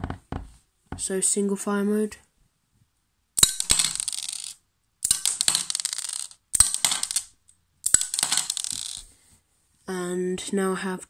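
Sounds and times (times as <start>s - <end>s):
plastic pieces clattering on wooden floor: 3.4s - 9.1s.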